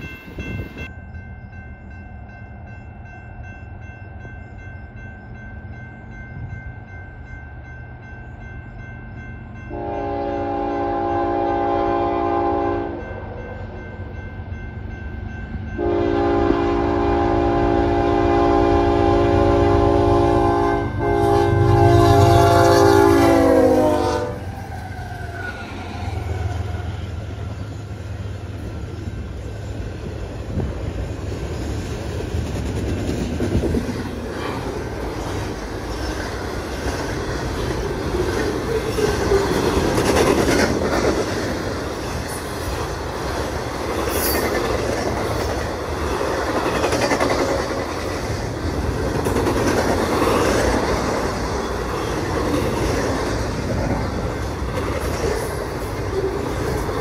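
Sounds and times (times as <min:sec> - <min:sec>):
train cars rumbling and clacking: 0:00.0 - 0:57.0
locomotive air horn: 0:09.7 - 0:13.0, 0:15.8 - 0:24.8.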